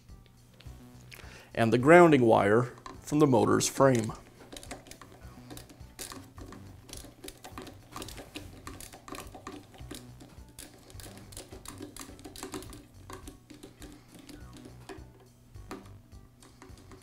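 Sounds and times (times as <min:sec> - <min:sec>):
wire leads handled: 0:01.8 - 0:17.0
screwdriver clicking and scraping: 0:03.8 - 0:17.0.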